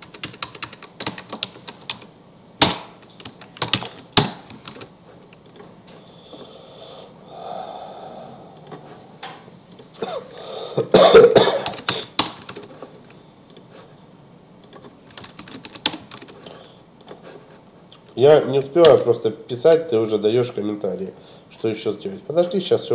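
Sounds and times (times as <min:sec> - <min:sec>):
computer keyboard typing: 0:00.0 - 0:05.7, 0:11.6 - 0:13.7, 0:14.6 - 0:17.2
loud cough: 0:10.0 - 0:12.1.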